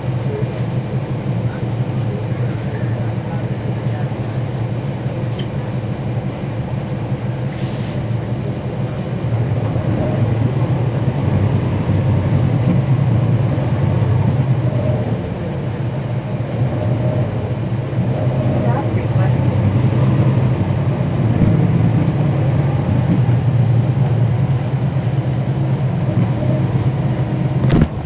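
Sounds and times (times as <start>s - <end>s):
bus diesel engine drone: 0.0s - 28.0s.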